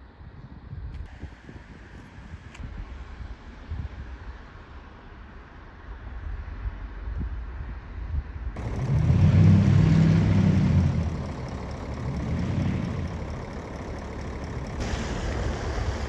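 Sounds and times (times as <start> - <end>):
bus diesel engine passing: 8.6 - 16.0.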